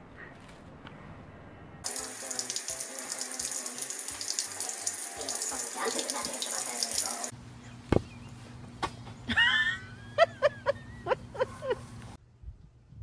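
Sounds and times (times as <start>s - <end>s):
tap water splashing on plastic: 1.9s - 7.3s.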